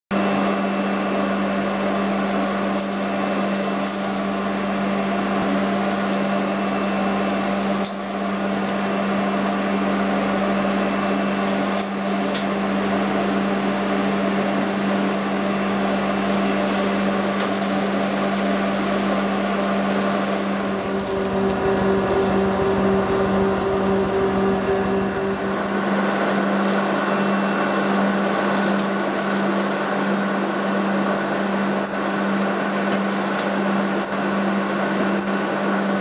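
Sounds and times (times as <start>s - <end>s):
industrial vacuum cleaner running: 0.2s - 36.0s
faint high whine: 15.3s - 29.1s.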